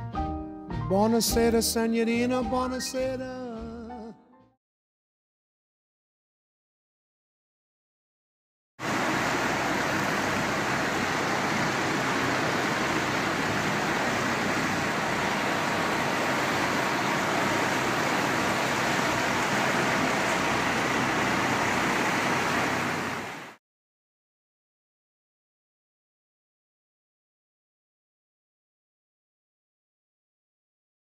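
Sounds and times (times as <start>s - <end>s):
water rushing: 8.8s - 23.6s.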